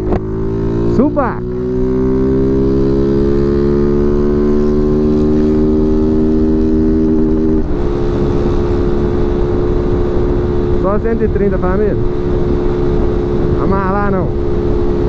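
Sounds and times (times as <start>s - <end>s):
motorcycle engine at full throttle: 0.0s - 15.0s.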